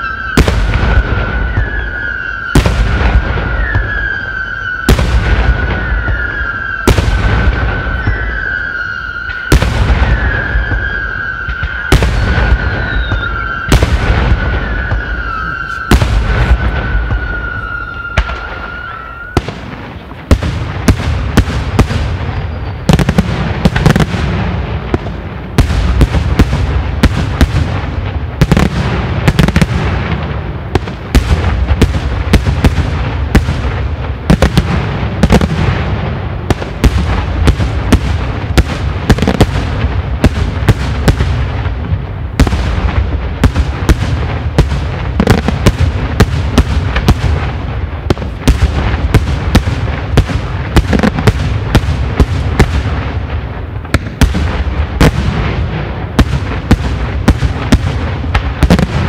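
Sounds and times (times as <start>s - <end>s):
fireworks bursting: 0.0s - 59.0s.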